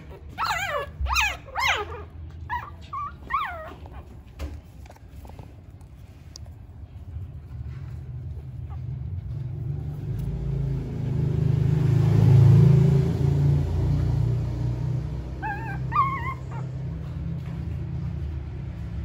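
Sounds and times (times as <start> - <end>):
puppy whimpering: 0.0 - 4.7, 15.3 - 17.7.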